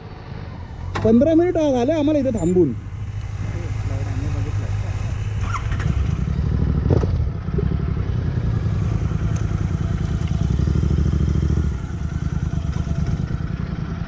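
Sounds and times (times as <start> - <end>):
motorcycle engine running: 2.8 - 14.0.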